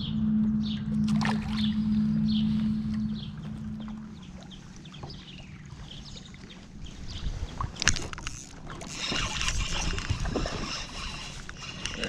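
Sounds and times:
wind on microphone: 0.0 - 12.0
water slapping kayak hull: 1.0 - 12.0
fishing reel whirring: 7.8 - 12.0.

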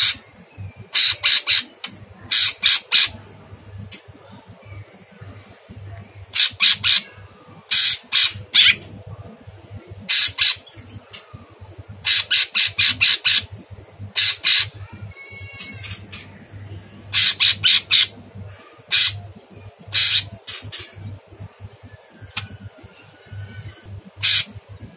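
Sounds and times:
bird singing harsh scratchy notes: 17.1 - 21.2, 22.3 - 24.6.

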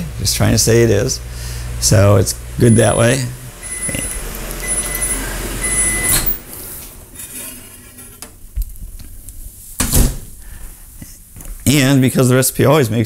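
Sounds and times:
steady hum with high tones: 0.0 - 9.8.

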